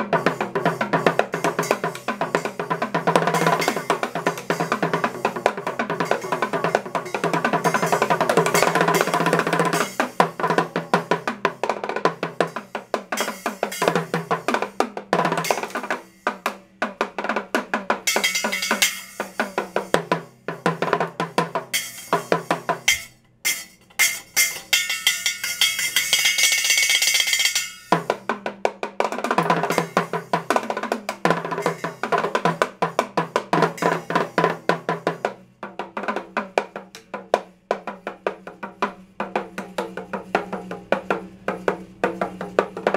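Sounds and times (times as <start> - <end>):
cymbal ringing: 0.0 - 11.8, 12.4 - 14.8, 18.0 - 20.1, 21.5 - 28.3, 31.0 - 34.6
drums played fast: 0.0 - 42.9.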